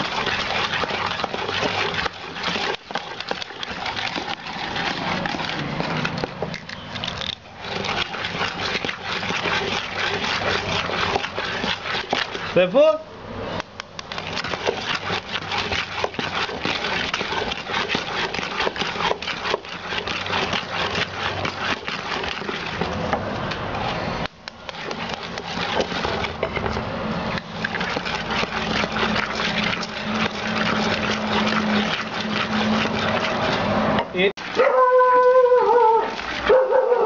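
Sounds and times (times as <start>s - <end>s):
spoon beating batter in metal bowl: 0.0s - 37.0s.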